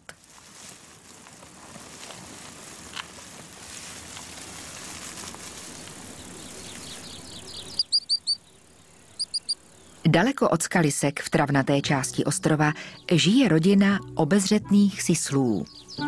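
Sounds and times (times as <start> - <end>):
snake rustling through dry grass: 0.0 - 10.0.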